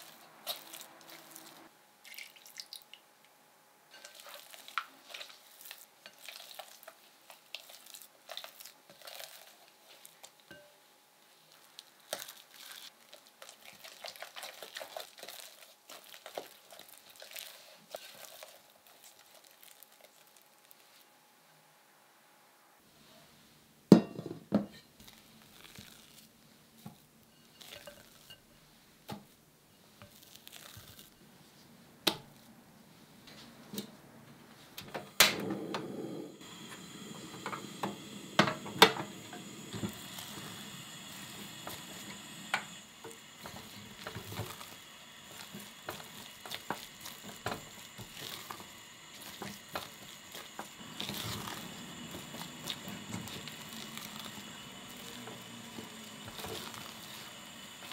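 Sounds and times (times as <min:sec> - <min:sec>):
gas burner hissing: 0:34.8 - 0:57.9
spatula scraping a bowl: 0:45.3 - 0:54.2.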